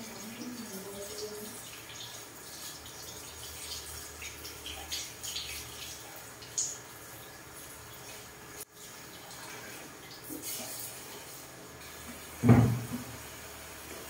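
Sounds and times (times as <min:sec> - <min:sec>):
water splashing from shower sprayer: 0:10.2 - 0:14.0.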